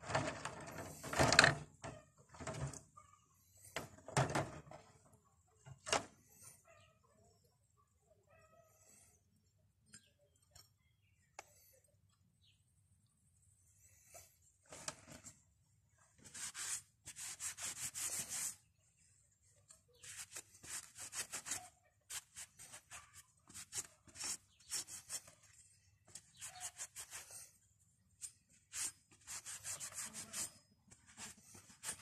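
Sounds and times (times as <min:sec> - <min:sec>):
cloth wiping metal: 0:16.2 - 0:18.6, 0:20.0 - 0:27.6, 0:28.2 - 0:32.0.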